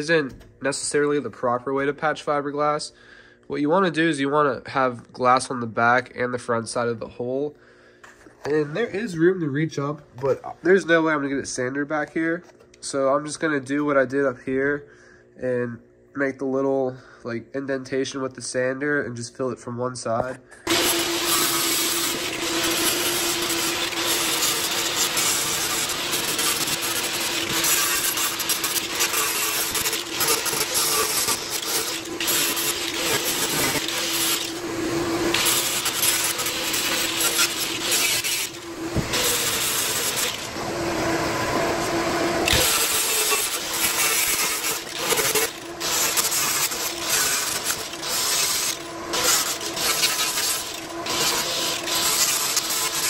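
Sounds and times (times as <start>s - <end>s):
power sander grinding fibreglass: 20.7s - 53.0s.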